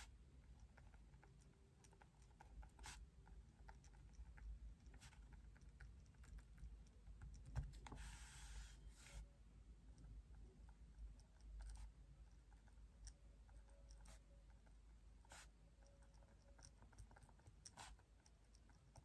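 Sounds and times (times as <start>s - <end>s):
pen scratching on paper: 2.4s - 3.1s, 17.6s - 18.1s.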